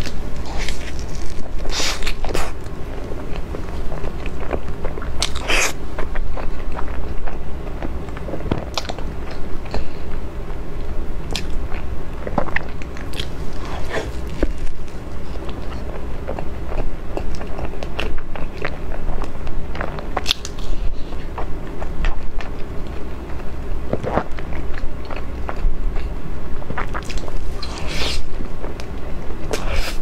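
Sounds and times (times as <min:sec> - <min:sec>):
low steady hum: 0:00.0 - 0:30.0
mouth chewing with smacking clicks: 0:10.8 - 0:30.0.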